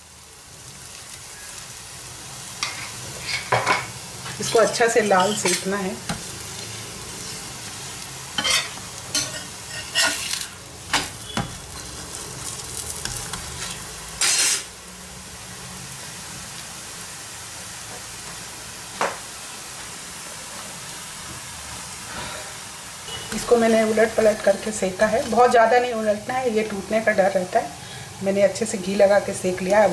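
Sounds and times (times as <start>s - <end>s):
flatbread sizzling in fat: 0.0s - 29.9s
spatula scraping a griddle: 2.6s - 7.6s, 8.4s - 14.7s, 22.1s - 23.6s.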